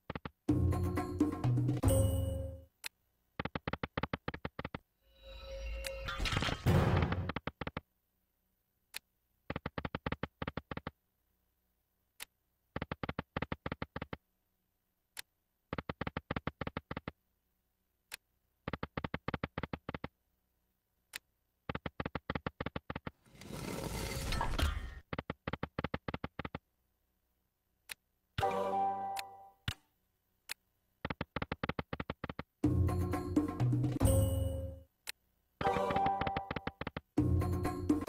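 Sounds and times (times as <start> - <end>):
game music: 0.2 - 2.7, 28.4 - 29.6, 32.6 - 34.9, 35.6 - 38.0.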